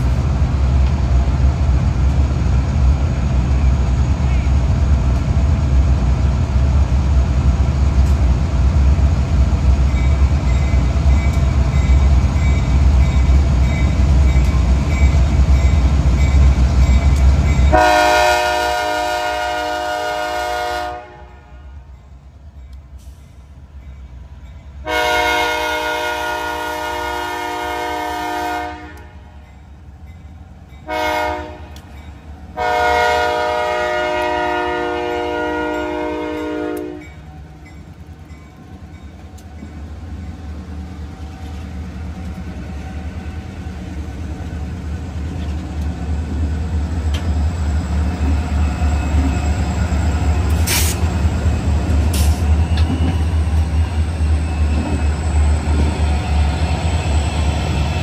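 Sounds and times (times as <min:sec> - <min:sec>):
train engine and wheels rumbling: 0:00.0 - 0:58.0
locomotive air horn blasts: 0:17.7 - 0:21.8, 0:24.8 - 0:29.2, 0:30.8 - 0:31.8, 0:32.6 - 0:37.1.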